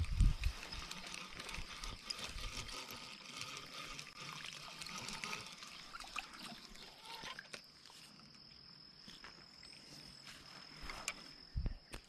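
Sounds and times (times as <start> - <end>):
water trickling: 0.4 - 7.9.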